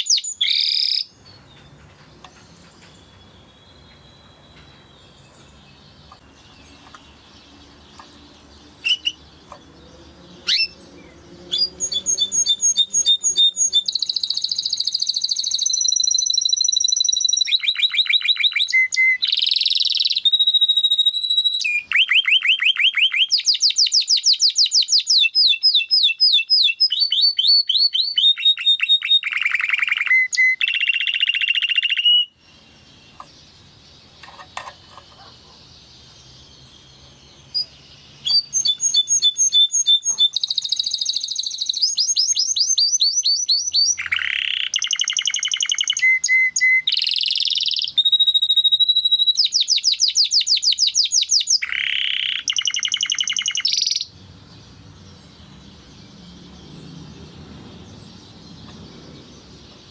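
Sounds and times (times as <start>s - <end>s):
canary singing: 0.0s - 59.9s.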